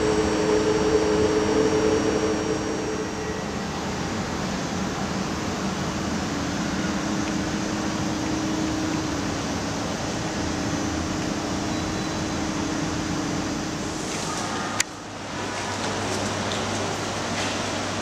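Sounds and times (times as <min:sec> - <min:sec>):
electric train hum: 0:00.0 - 0:18.0.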